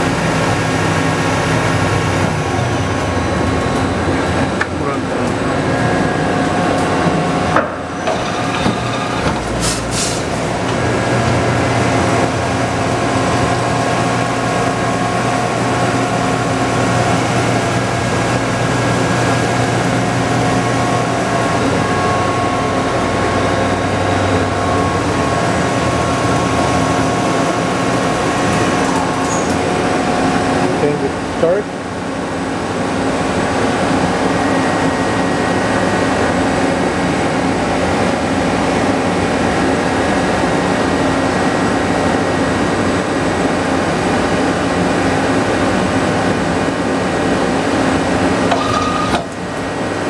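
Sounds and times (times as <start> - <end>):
machine hum with whine: 0.0 - 50.0.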